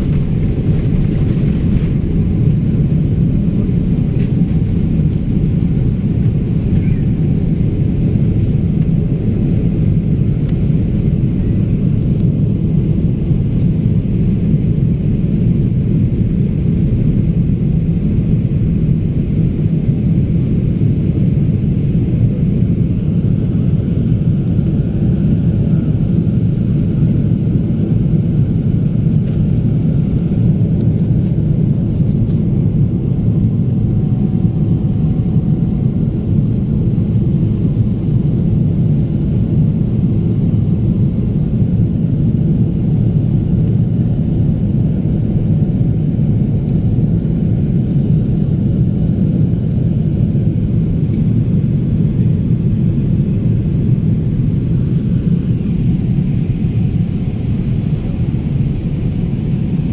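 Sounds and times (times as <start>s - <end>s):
rushing air: 0.0s - 12.0s
jet engines roaring in cabin: 0.0s - 59.9s.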